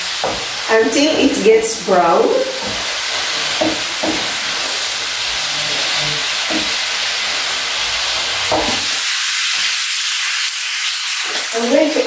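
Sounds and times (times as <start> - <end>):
meat sizzling in a frying pan: 0.0 - 12.0
wooden spatula scraping: 2.4 - 9.4.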